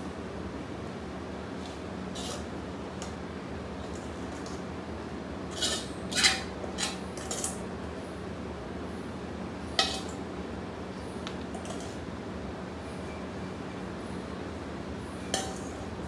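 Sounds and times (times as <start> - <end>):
utensil scraping a wok: 1.6 - 2.5, 5.5 - 7.6, 9.8 - 10.2, 11.5 - 12.0.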